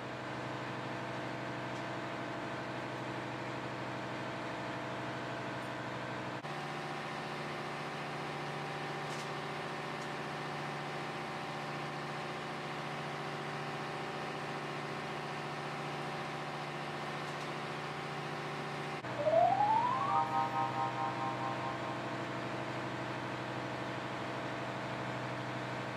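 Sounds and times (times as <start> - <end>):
engine room machinery drone: 19.0 - 23.2
tone rising in pitch: 19.1 - 22.7.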